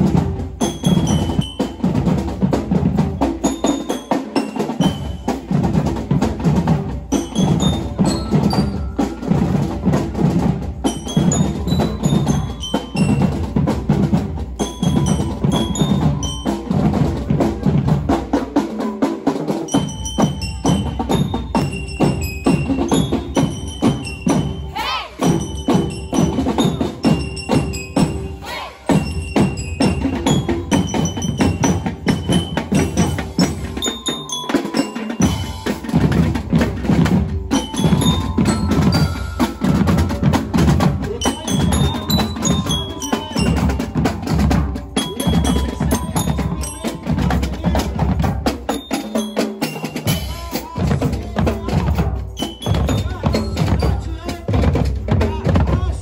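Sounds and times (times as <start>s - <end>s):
bass drums: 0.0s - 3.5s, 35.2s - 48.8s, 50.1s - 56.0s
snare drums: 0.0s - 56.0s
high bell-like melody: 0.1s - 55.8s.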